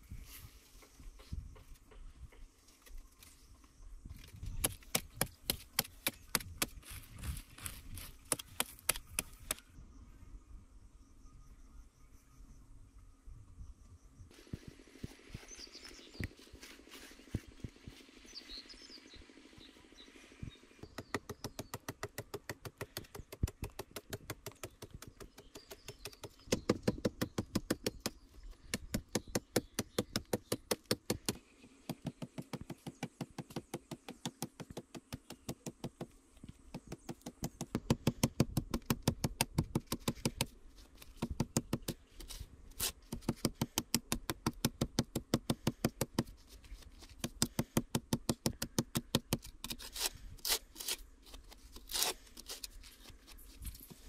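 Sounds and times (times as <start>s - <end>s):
knife scraping dry clay soil: 20.9s - 36.0s, 36.7s - 54.0s.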